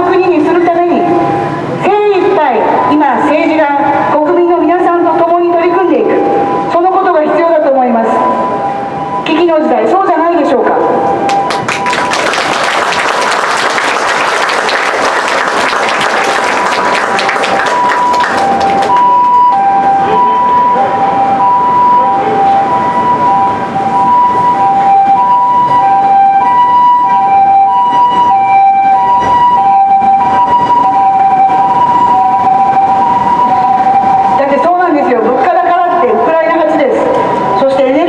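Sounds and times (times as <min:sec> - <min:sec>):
two-tone ambulance siren: 0:00.0 - 0:38.0
crowd applauding: 0:11.3 - 0:19.6.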